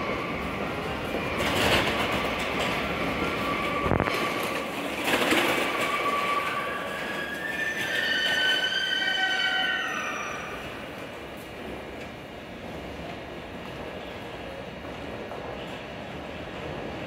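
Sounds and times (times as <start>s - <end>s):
high brake squeal: 5.8s - 10.6s.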